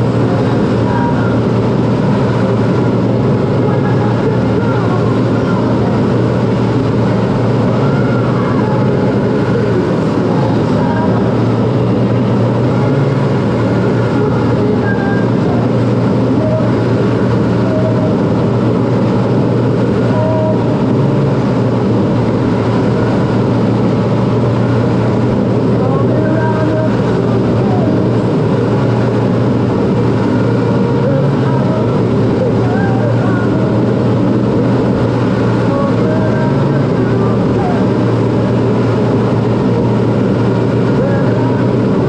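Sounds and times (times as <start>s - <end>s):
jet engine drone: 0.0s - 42.0s
rushing air in cockpit: 0.0s - 42.0s.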